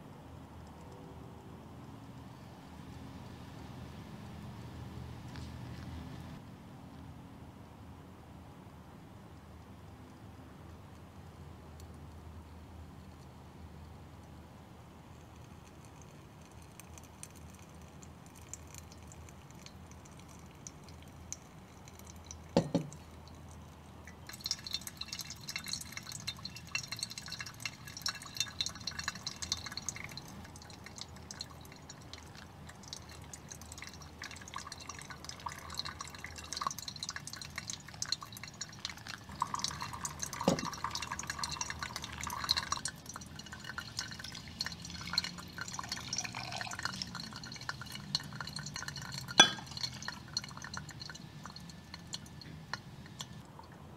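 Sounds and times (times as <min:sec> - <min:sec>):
coffee dripping into glass: 0:15.2 - 0:53.9.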